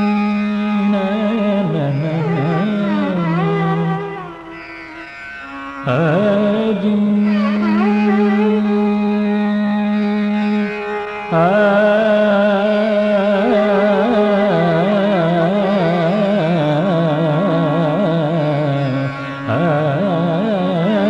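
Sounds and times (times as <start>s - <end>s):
ornamented melody line: 0.0s - 11.6s.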